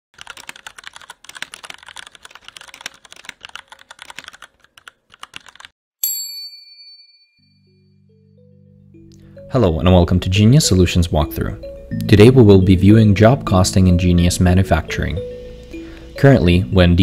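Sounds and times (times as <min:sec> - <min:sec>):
keyboard typing: 0:00.2 - 0:05.7
bright ding: 0:06.0 - 0:08.1.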